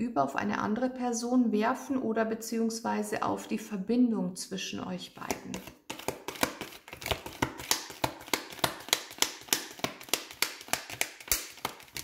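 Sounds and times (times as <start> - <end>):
cards being shuffled: 5.2 - 12.0.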